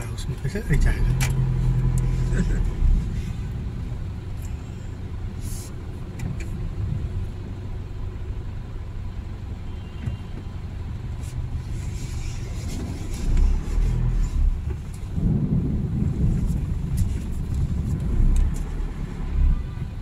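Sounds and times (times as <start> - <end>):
low rumble of car and traffic: 0.0 - 20.0
rain ticking on windscreen: 11.5 - 20.0
loud low rumble: 13.1 - 20.0.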